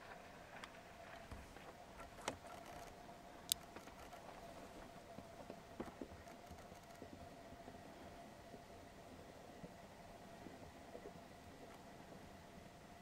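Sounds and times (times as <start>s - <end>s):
faint steady hum: 0.0s - 13.0s
small clicks: 3.5s - 4.2s, 6.2s - 7.1s.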